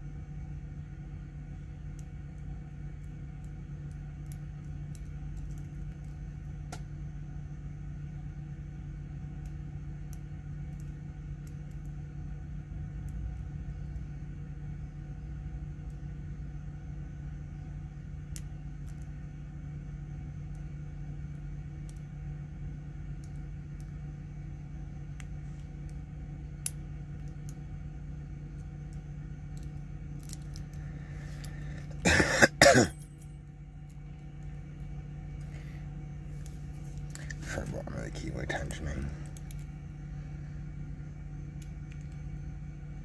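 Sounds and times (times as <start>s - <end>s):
steady low hum: 0.0s - 43.0s
person coughing: 32.0s - 33.0s.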